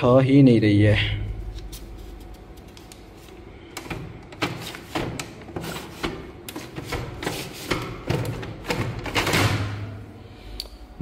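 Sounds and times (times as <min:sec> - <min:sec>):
printer parts clicking and knocking: 0:03.7 - 0:09.7.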